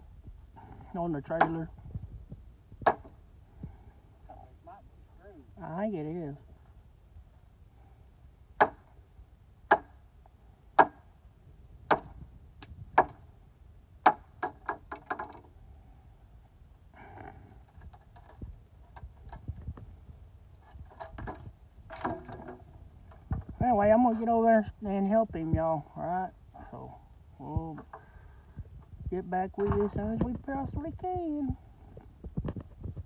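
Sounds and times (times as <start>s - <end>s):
knocks on wooden framing: 2.8s - 3.2s, 8.6s - 8.9s, 10.8s - 11.0s, 11.9s - 12.2s, 13.0s - 13.2s, 14.0s - 15.5s.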